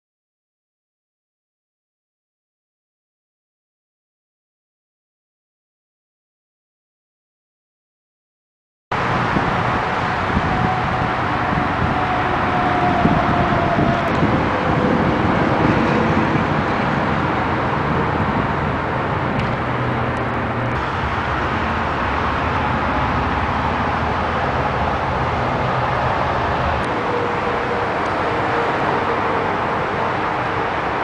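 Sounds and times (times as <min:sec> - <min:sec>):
machinery rushing hum with whine: 0:09.0 - 0:31.0.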